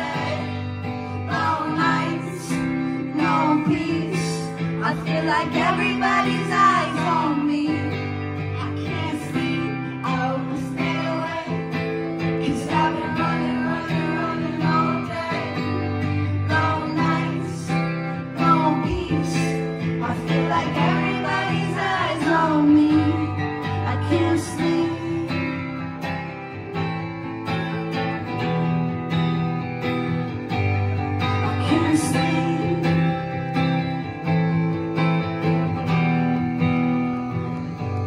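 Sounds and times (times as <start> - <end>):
woman singing: 0.0 - 26.0, 31.2 - 33.6
acoustic guitar strumming: 0.0 - 38.0.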